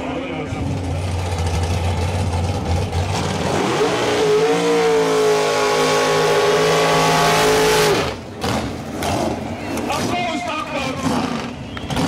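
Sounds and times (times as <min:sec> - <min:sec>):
car engine revving: 0:00.6 - 0:09.4.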